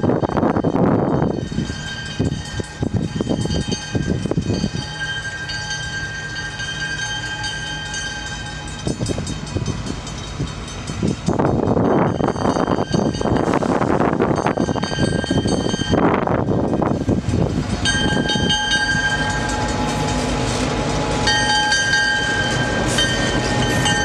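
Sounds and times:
wind noise on microphone: 0.0 - 5.0, 8.8 - 19.6
distant diesel locomotive humming: 0.0 - 24.0
high ringing tone: 17.8 - 20.2.

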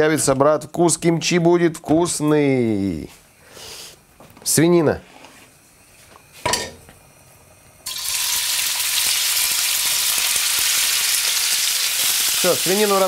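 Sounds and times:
meat sizzling in hot oil: 7.8 - 13.0.

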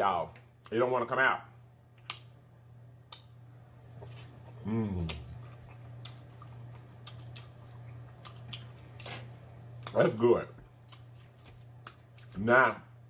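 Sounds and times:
steady low hum: 0.0 - 13.0
person humming: 4.6 - 5.4
wet mouth clicks and chewing: 5.1 - 8.8, 10.8 - 12.4.

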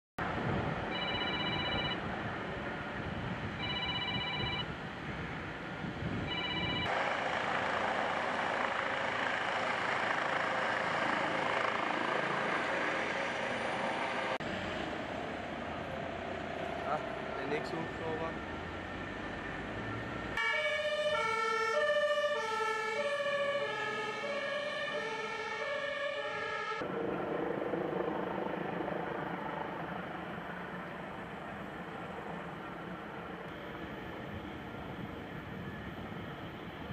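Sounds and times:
electronic alarm tone: 0.9 - 2.0, 3.6 - 4.7, 6.2 - 7.0
helicopter rushing noise: 6.2 - 36.9
two-tone fire engine siren: 6.2 - 36.9.

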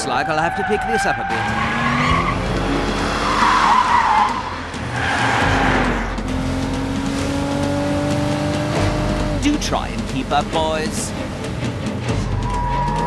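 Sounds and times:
tyre screech: 0.0 - 6.1, 12.2 - 13.0
car engine revving: 0.0 - 13.0.

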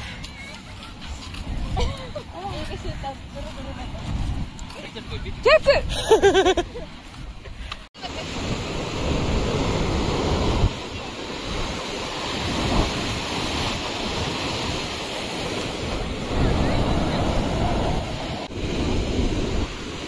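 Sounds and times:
wind buffeting microphone: 0.0 - 20.0
sea waves washing onto beach: 7.6 - 20.0.

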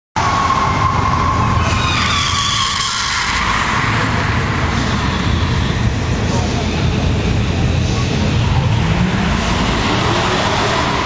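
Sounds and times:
car engine running: 3.5 - 11.0.

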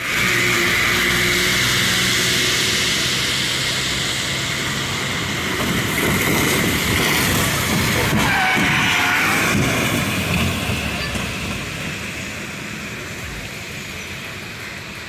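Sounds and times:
traffic driving through water: 0.0 - 15.0.

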